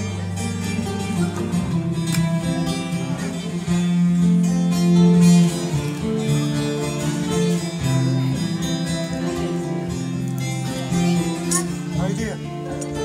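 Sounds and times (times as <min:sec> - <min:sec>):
acoustic guitar: 0:00.0 - 0:13.0
live band instrumental music: 0:00.0 - 0:13.0.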